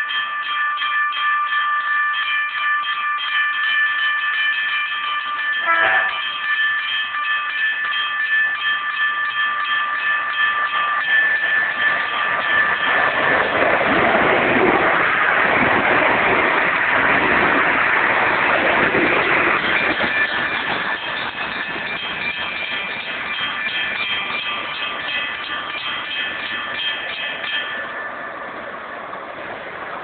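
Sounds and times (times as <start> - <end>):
level crossing warning bell ringing: 0.0 - 14.0, 18.9 - 28.6
passing train: 0.0 - 30.0.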